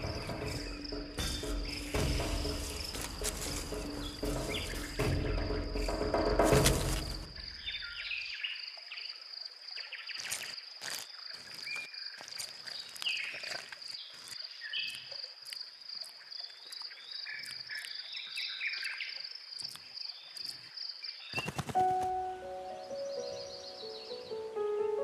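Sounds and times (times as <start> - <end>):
high insect trill: 0.0 - 8.7.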